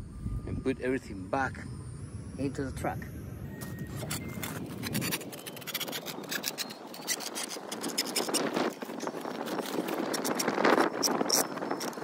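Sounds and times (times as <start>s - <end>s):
low rumble: 0.0s - 4.9s
hand tools scratching and clicking: 3.6s - 12.0s.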